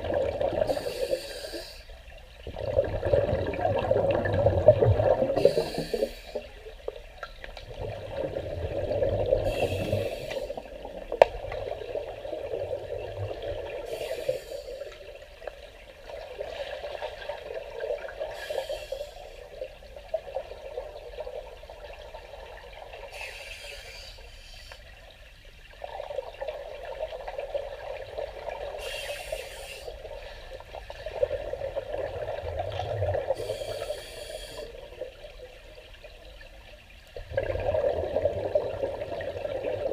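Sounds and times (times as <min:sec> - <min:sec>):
gurgling exhaled bubbles: 0:00.0 - 0:01.0, 0:02.4 - 0:06.6, 0:07.6 - 0:14.4, 0:30.8 - 0:34.0, 0:37.2 - 0:39.9
regulator breathing hiss: 0:00.7 - 0:02.0, 0:05.4 - 0:06.5, 0:09.4 - 0:10.7, 0:13.9 - 0:15.0, 0:18.3 - 0:19.5, 0:23.1 - 0:24.8, 0:28.8 - 0:30.4, 0:33.4 - 0:34.8.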